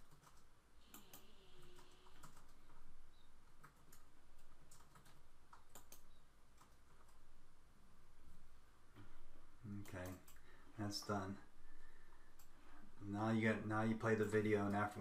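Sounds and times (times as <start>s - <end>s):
computer mouse clicks: 0.0s - 2.8s, 3.6s - 7.2s
keyboard clicks: 0.0s - 2.8s, 3.6s - 7.2s.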